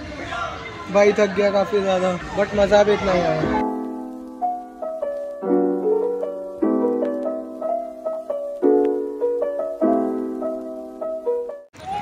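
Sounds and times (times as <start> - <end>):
piano piece: 3.3 - 11.8.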